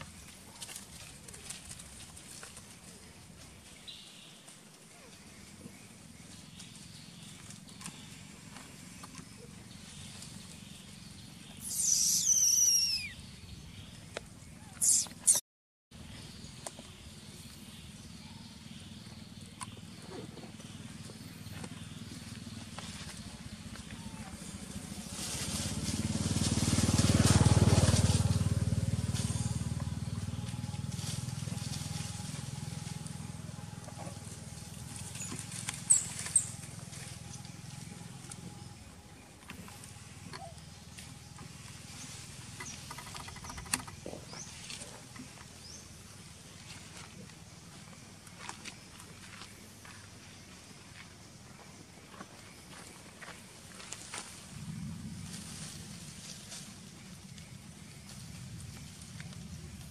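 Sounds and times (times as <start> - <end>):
faint rustles and clicks: 0.0 - 10.6
macaque screaming: 11.6 - 13.2, 14.8 - 15.4
monkeys squealing: 11.6 - 13.2, 14.7 - 15.4
low motor hum: 16.0 - 48.9.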